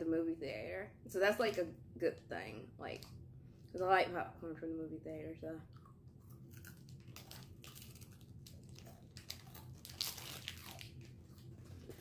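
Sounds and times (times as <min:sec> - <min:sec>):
crunchy chewing: 0:05.7 - 0:12.0
plastic wrapper crackling: 0:06.6 - 0:12.0.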